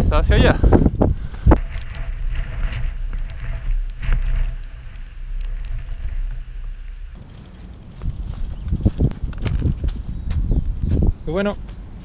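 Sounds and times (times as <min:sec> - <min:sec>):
low wind rumble on microphone: 0:00.0 - 0:12.0
rain drops ticking: 0:01.2 - 0:08.1.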